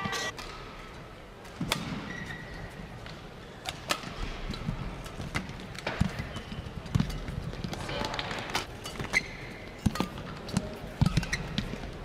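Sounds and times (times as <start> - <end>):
shoe squeak on court: 2.0 - 2.7, 8.8 - 11.7.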